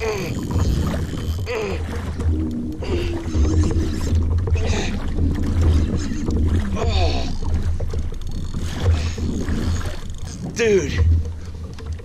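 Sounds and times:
water moving: 0.0s - 12.0s.

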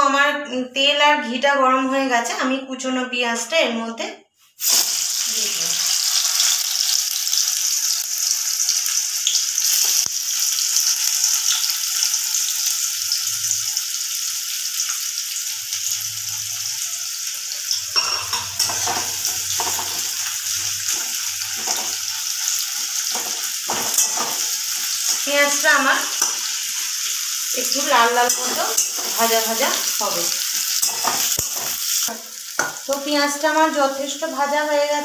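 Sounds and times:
onions sizzling in oil: 4.6s - 35.0s
metal spoon scraping a pan: 15.8s - 32.9s.

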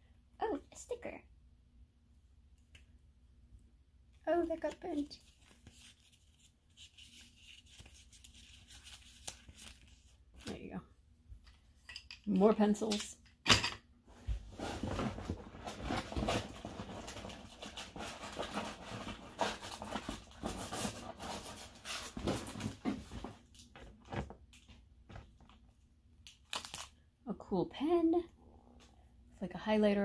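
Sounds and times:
paper and plastic items rustling: 4.4s - 10.7s, 14.5s - 25.6s.

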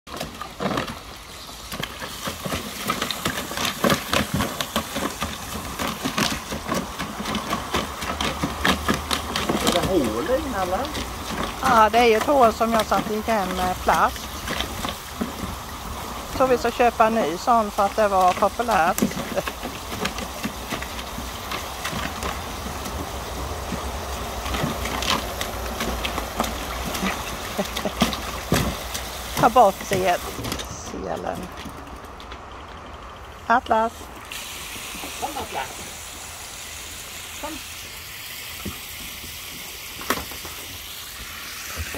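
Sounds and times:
puppy splashing in water: 0.1s - 32.1s
hose spray hissing into water: 33.9s - 41.9s.

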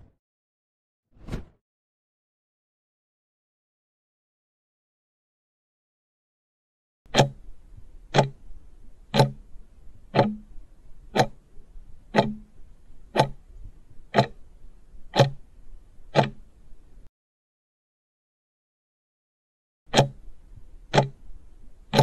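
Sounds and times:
clock ticking: 7.1s - 17.1s, 19.9s - 22.0s.

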